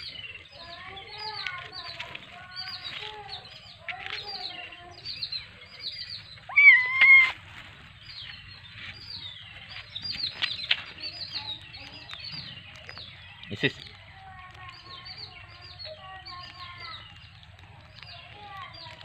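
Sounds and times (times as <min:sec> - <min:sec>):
small birds chirping: 0:00.0 - 0:19.0
kittens mewing: 0:06.5 - 0:07.4
loud kitten meow: 0:06.5 - 0:07.4.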